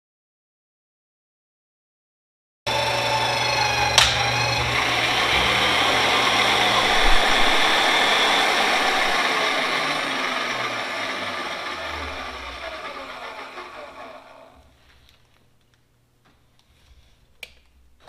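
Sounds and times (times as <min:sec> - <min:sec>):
drill motor whining: 0:02.7 - 0:14.8.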